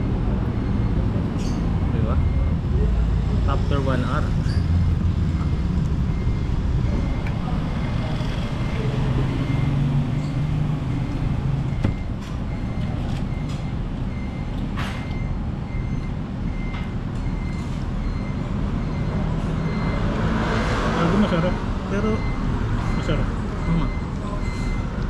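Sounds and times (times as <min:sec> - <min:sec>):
low traffic rumble: 0:00.0 - 0:25.0
reversing alarm beeping: 0:00.5 - 0:02.8, 0:05.2 - 0:25.0.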